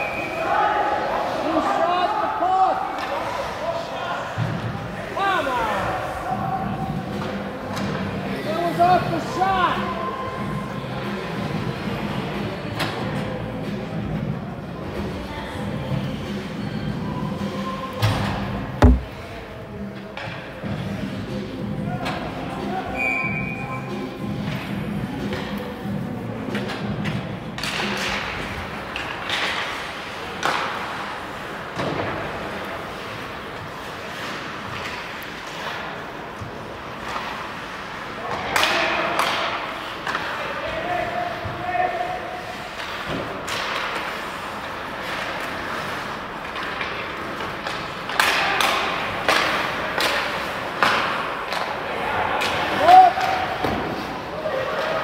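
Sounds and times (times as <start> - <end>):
hockey sticks and puck clacking: 2.9 - 3.5, 26.4 - 41.6, 42.4 - 55.0
hockey sticks and puck knocking: 18.8 - 19.2, 46.4 - 51.8.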